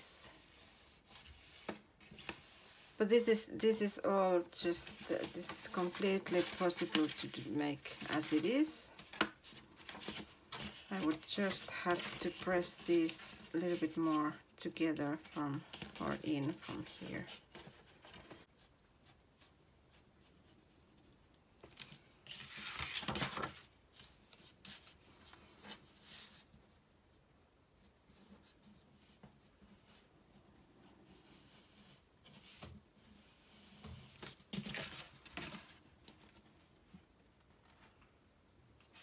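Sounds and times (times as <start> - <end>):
paper rustling: 0.4 - 18.5, 21.6 - 26.5, 31.4 - 36.6.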